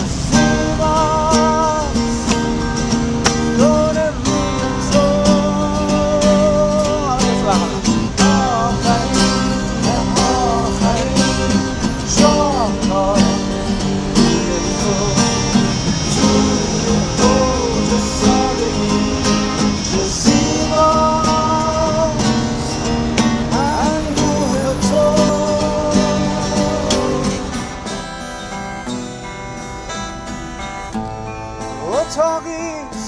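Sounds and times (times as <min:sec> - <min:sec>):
acoustic guitars strumming: 0:00.0 - 0:33.0
melodica melody: 0:23.9 - 0:33.0.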